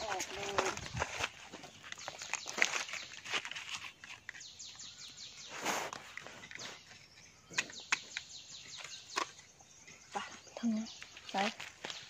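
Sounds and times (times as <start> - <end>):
leaf litter crunching: 0.0 - 4.8
faint bird chirping: 0.0 - 12.0
digging tool scraping soil: 5.4 - 7.2.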